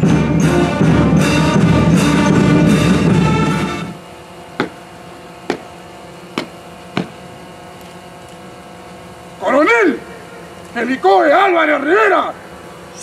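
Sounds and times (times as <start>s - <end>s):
band music with drums: 0.0s - 3.9s.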